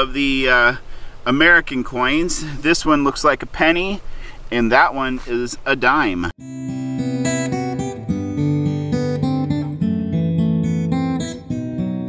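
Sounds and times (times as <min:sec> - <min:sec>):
acoustic guitar tune: 0:06.4 - 0:12.0.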